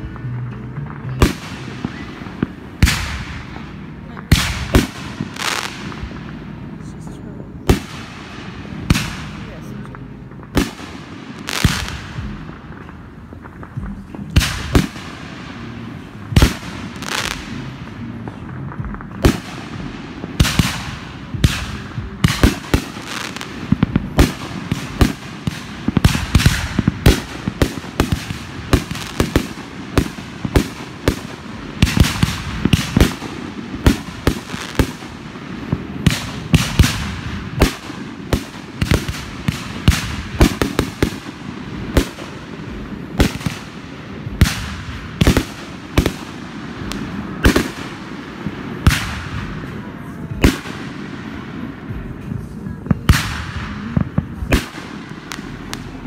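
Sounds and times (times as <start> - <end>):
fireworks bangs: 0.0 - 56.0.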